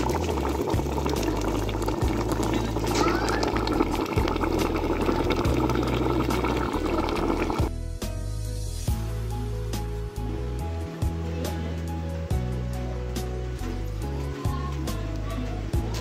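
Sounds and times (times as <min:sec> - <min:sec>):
thick sauce bubbling in a pot: 0:00.0 - 0:07.7.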